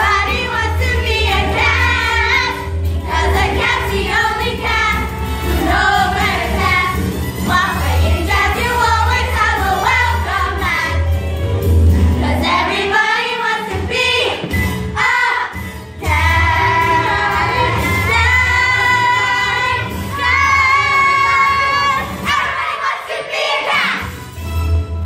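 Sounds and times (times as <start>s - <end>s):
instrumental accompaniment with bass: 0.0s - 12.9s, 13.8s - 22.4s, 24.0s - 25.0s
children's chorus singing: 12.2s - 24.1s.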